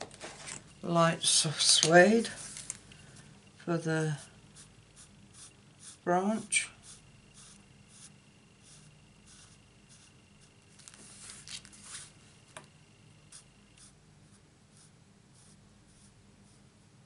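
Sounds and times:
marker scratching on card: 0:04.6 - 0:06.0, 0:06.8 - 0:10.6, 0:13.3 - 0:16.6.

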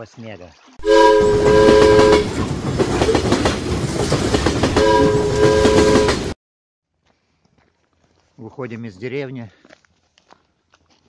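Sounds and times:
train whistle chord: 0:00.8 - 0:02.3, 0:04.8 - 0:06.3
wheels clattering on rail joints: 0:01.3 - 0:06.3.

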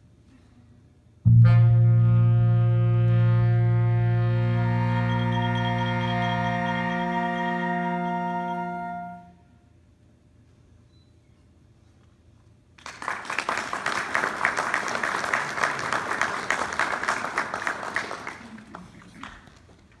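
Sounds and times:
audience applauding: 0:12.8 - 0:20.0.

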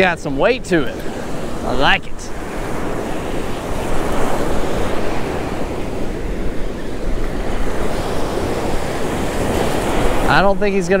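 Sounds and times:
surf breaking on a sandy beach: 0:00.0 - 0:11.0
wind buffeting microphone: 0:00.0 - 0:11.0.

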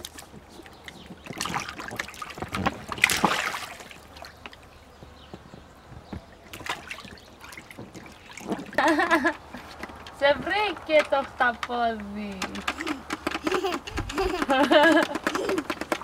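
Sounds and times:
water splashing in paddling pool: 0:00.0 - 0:04.8, 0:06.3 - 0:11.1.

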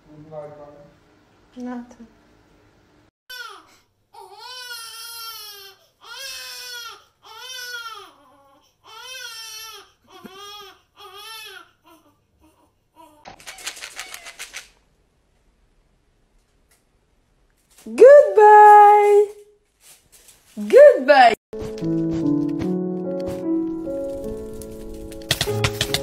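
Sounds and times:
plastic treat tub rattling: 0:13.4 - 0:14.8.

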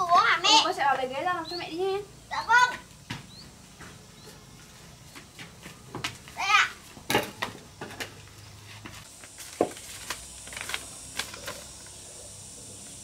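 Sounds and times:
paper rustling and crinkling: 0:09.0 - 0:11.9.

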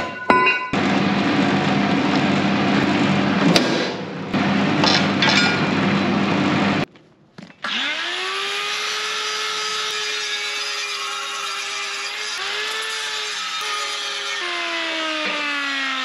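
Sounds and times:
power tool cutting: 0:07.6 - 0:16.0.

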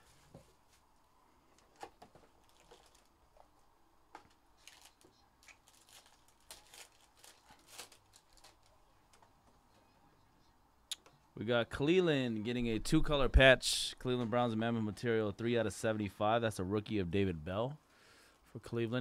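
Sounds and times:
foil card pack tearing: 0:04.6 - 0:08.7.

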